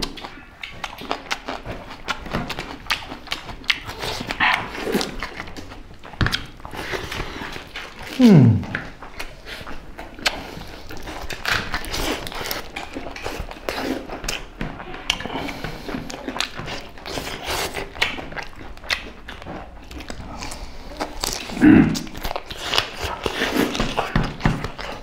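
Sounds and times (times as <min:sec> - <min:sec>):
people chewing and lip-smacking: 0:00.0 - 0:25.0.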